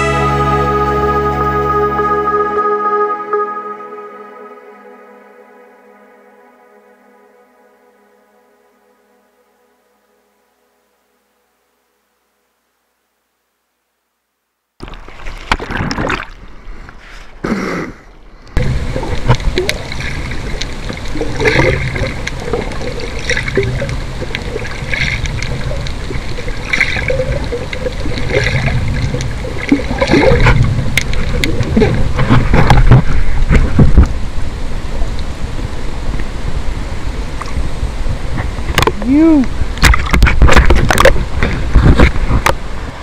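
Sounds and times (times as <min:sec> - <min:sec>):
water sloshing and splashing: 0:14.8 - 0:17.0, 0:18.6 - 0:34.0, 0:39.7 - 0:42.5.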